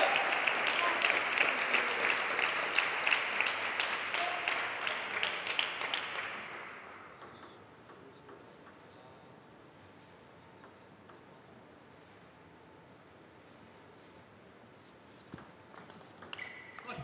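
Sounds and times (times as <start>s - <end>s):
audience applause: 0.0s - 6.4s.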